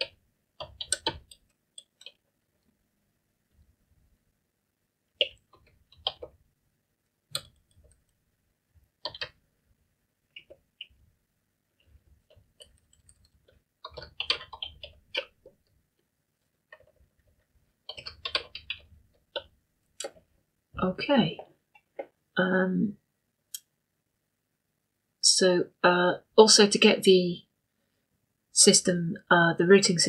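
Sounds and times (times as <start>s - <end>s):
typing on computer keyboard: 0.0s - 2.2s, 5.2s - 6.4s, 7.3s - 8.2s, 9.0s - 9.4s, 11.8s - 15.7s, 16.7s - 20.2s.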